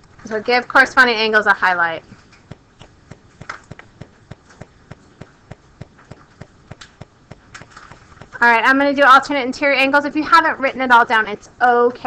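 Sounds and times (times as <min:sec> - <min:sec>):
faint regular ticking: 0:00.0 - 0:09.6.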